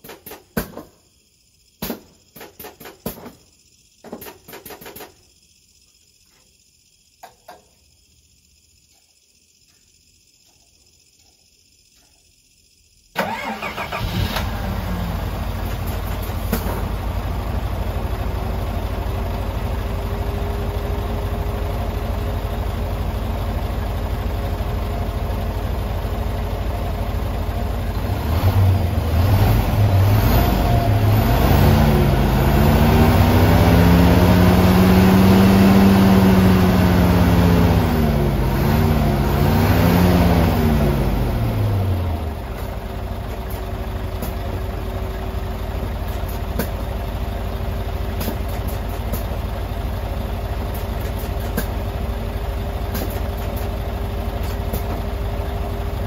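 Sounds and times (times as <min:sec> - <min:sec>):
diesel bus engine idling and revving: 0:13.2 - 0:56.0.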